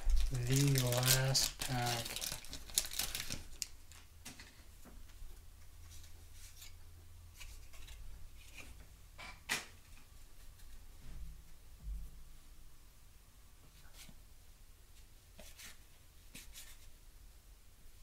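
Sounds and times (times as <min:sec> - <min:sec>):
wax paper wrapper crinkling: 0:00.0 - 0:04.1.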